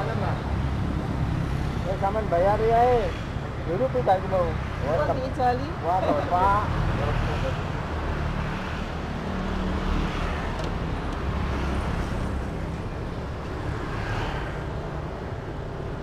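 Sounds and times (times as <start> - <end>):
motorbikes passing: 0.0 - 16.0
road traffic rumble: 0.0 - 16.0.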